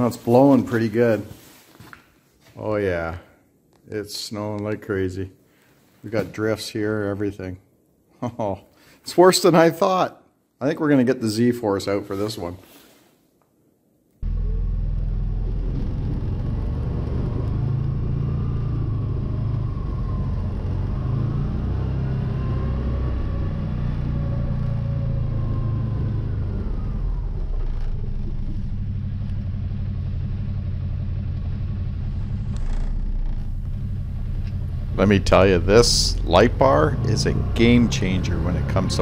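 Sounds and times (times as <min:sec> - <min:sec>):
engine low rumble: 0:14.2 - 0:39.0
whine rising and falling: 0:14.2 - 0:39.0.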